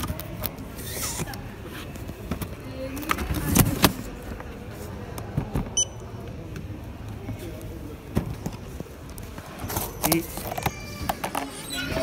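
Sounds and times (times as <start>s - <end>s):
knocks and rustling of goods: 1.0s - 5.8s, 7.3s - 12.0s.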